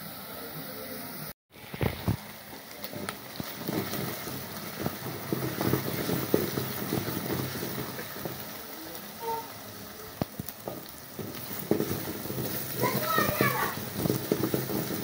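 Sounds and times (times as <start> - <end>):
onions sizzling in hot oil: 0.0 - 15.0
wooden spoon stirring: 2.6 - 9.5, 10.2 - 15.0.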